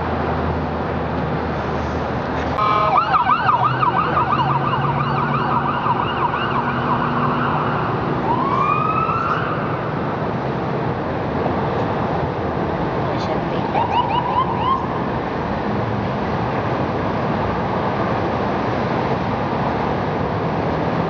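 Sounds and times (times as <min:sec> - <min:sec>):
traffic noise: 0:00.0 - 0:21.0
electronic siren yelping and wailing: 0:02.6 - 0:09.9, 0:13.8 - 0:15.0.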